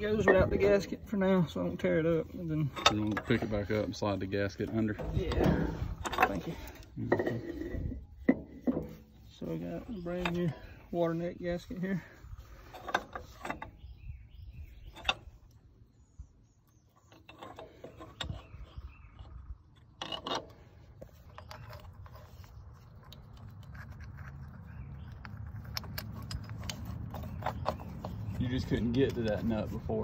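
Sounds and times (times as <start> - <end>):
metal engine parts clinking: 0.0 - 14.0, 14.6 - 15.7, 17.0 - 24.0.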